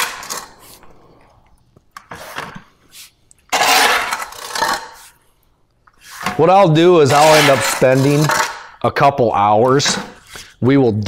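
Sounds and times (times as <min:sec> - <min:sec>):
shovel scraping on concrete: 0:02.1 - 0:05.2, 0:06.0 - 0:08.8.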